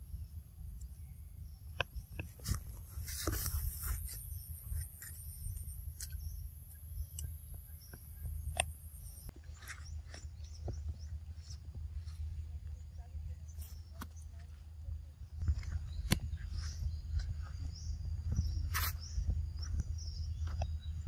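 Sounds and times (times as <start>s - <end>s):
low rumble on microphone: 1.0s - 21.0s
camera rustling: 2.2s - 6.4s, 15.4s - 19.7s.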